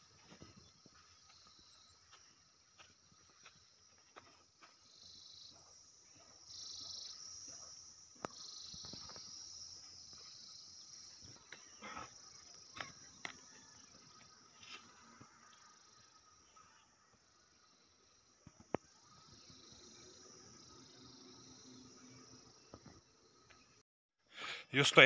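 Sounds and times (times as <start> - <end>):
insects chirring: 0.0 - 23.8.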